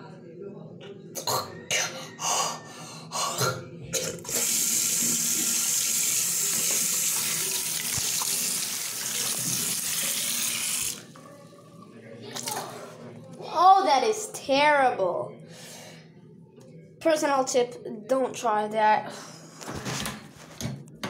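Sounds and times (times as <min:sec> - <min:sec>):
tap running into sink: 0:09.0 - 0:10.0.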